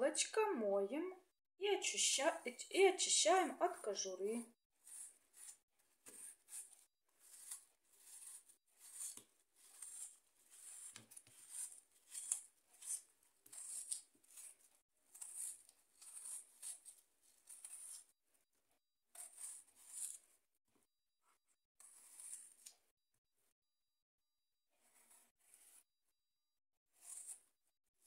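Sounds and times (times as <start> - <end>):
knife peeling apple: 4.8 - 18.1, 19.1 - 20.4, 21.8 - 22.9, 24.8 - 25.8, 26.9 - 27.6.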